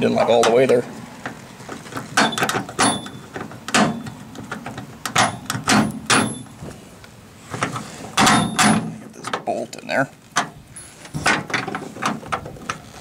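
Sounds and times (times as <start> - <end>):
metal bolt clinking on metal: 2.2 - 6.6, 8.2 - 9.4.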